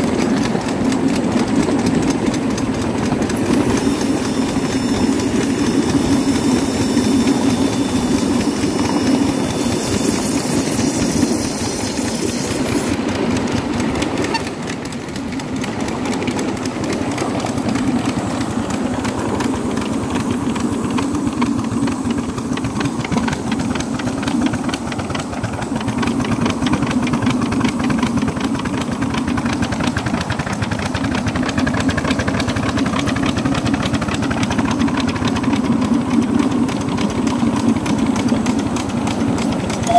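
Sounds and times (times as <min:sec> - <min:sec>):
wheels clattering on rails: 0:00.0 - 0:39.9
high steam hiss: 0:03.2 - 0:13.4.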